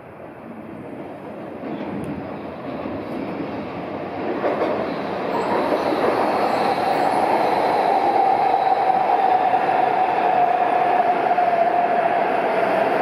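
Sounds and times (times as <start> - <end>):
train running into station: 0.0 - 13.0.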